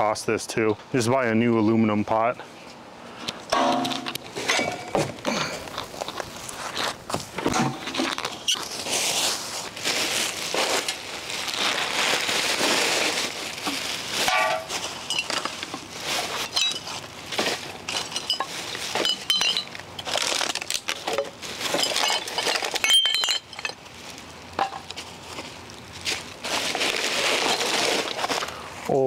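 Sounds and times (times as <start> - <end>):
hard debris clinking: 3.5 - 5.1, 14.2 - 23.9
plastic trash bag rustling: 3.6 - 28.9.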